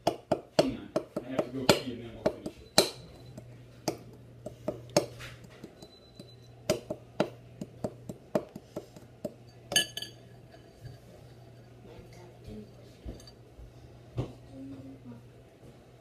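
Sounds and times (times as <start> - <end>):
spoon scraping in mixing bowl: 8.0 - 13.4
ringing clink: 9.5 - 11.7.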